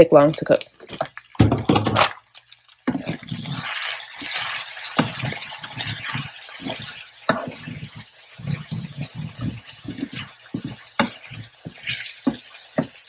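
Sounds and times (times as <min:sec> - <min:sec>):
beef sizzling in a frying pan: 0:00.0 - 0:13.0
spatula scraping a pan: 0:02.8 - 0:13.0.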